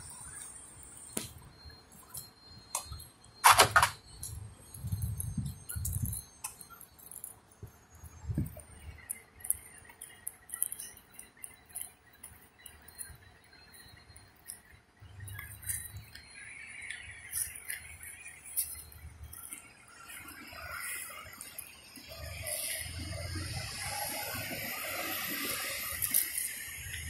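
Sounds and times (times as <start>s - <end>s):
small metallic clinks: 1.6s - 21.7s.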